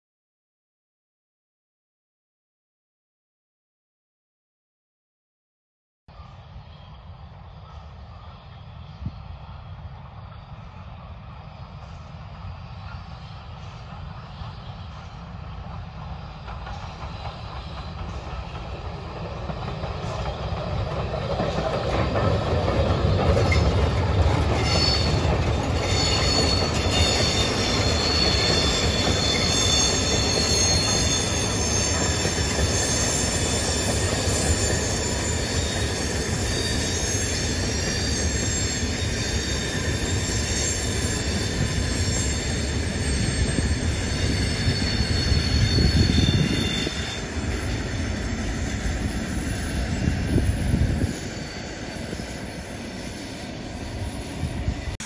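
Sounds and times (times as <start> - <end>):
steam train rumbling past: 6.1 - 55.0
high-pitched wheel squeal: 23.2 - 53.4.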